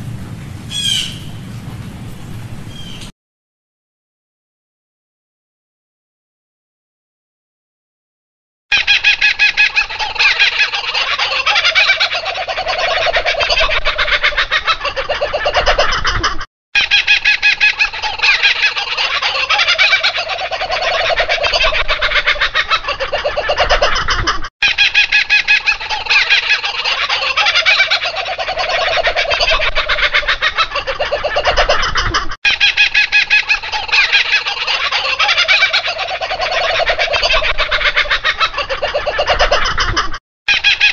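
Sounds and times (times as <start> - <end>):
nestlings cheeping: 0.2 - 3.1
lower-pitched bird calls: 0.7 - 1.5, 2.7 - 3.1.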